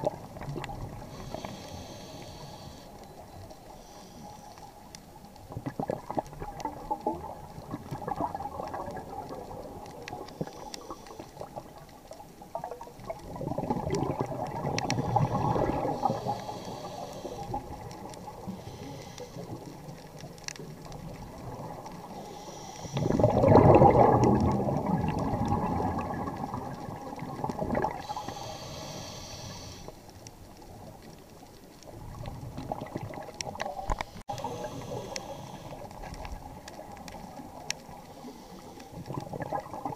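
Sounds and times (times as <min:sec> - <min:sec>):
exhaled air bubbling underwater: 0:00.0 - 0:39.9
faint crackling clicks: 0:00.0 - 0:39.9
regulator hissing on inhale: 0:00.9 - 0:05.0, 0:10.2 - 0:11.8, 0:14.8 - 0:19.8, 0:22.0 - 0:23.4, 0:28.0 - 0:30.2, 0:33.9 - 0:36.3, 0:37.9 - 0:39.2.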